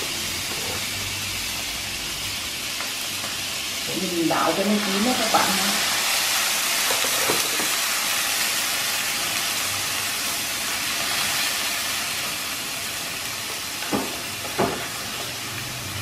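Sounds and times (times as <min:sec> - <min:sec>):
meat sizzling in a pan: 0:00.0 - 0:16.0.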